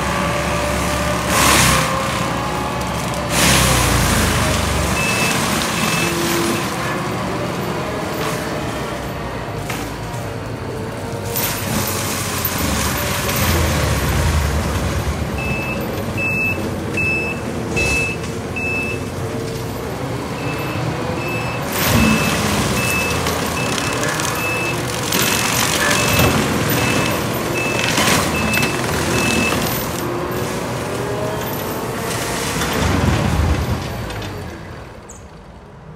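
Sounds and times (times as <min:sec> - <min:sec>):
mulcher grinding brush: 0:00.0 - 0:34.5
diesel engine running hard: 0:00.0 - 0:35.2
backup alarm beeping: 0:15.4 - 0:19.1, 0:20.4 - 0:29.7.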